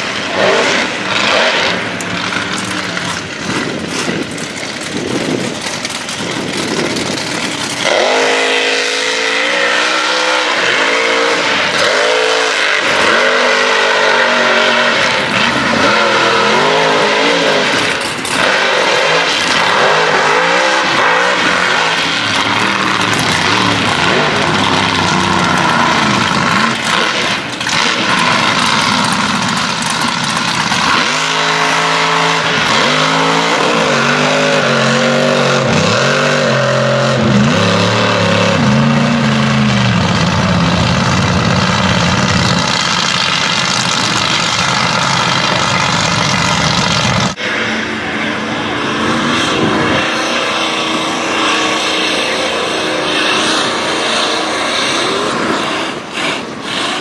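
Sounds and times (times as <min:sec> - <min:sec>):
tires throwing mud and water: 0:00.0 - 0:57.0
truck engine revving: 0:00.0 - 0:57.0.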